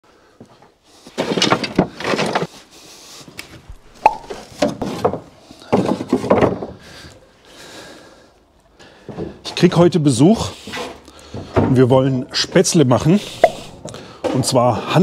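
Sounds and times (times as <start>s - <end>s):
wooden boards knocking together: 1.2s - 2.5s, 4.0s - 6.8s.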